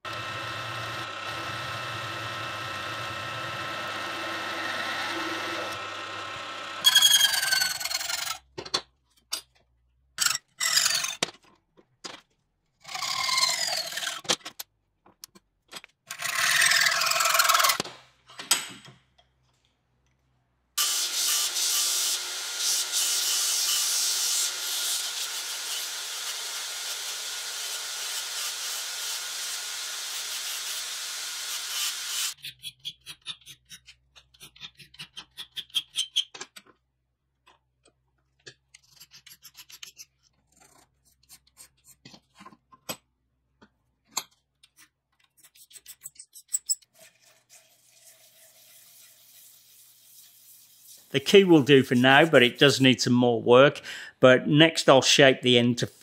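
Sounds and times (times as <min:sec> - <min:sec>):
drill bit through steel: 0:00.1 - 0:08.0
belt sander grinding steel: 0:00.1 - 0:08.3, 0:20.8 - 0:32.4.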